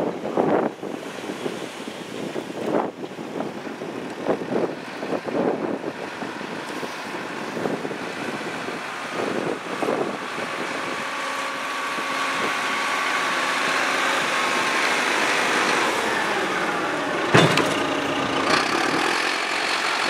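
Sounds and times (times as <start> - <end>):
diesel engine running: 3.2 - 20.0
sharp metal clank: 17.3 - 17.9.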